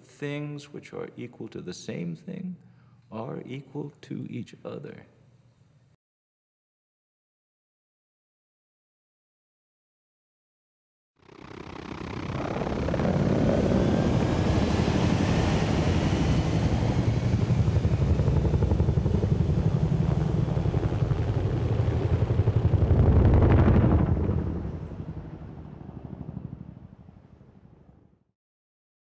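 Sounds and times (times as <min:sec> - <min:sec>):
helicopter rotors chopping: 0:11.2 - 0:28.0
faint rising whine: 0:11.3 - 0:27.9.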